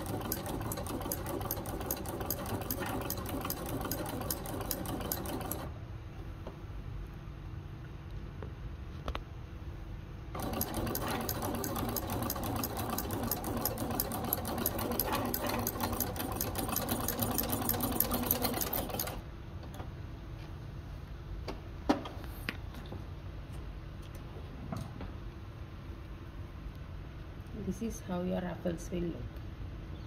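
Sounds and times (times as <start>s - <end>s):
sewing machine running fast: 0.0s - 5.7s, 10.4s - 19.2s.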